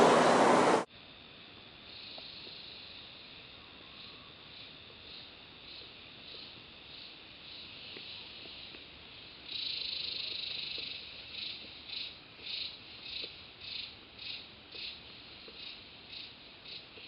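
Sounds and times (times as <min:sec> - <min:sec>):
high-pitched insect song: 0:00.9 - 0:17.0.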